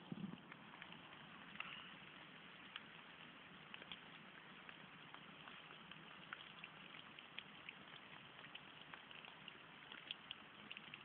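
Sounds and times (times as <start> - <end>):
brook babbling faintly: 0.0 - 11.0.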